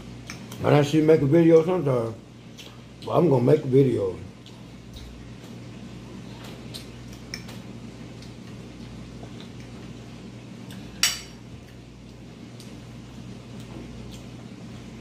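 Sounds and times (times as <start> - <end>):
forks clinking on glass plates: 11.0 - 11.4.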